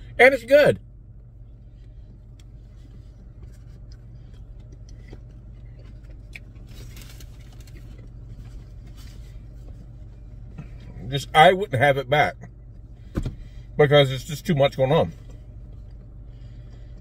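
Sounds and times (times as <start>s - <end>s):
low hum in car cabin: 0.0s - 17.0s
paper wrapper rustle: 6.7s - 7.9s.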